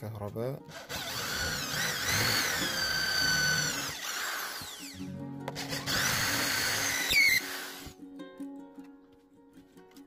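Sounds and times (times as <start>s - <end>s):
electric drill whining: 0.7s - 7.9s.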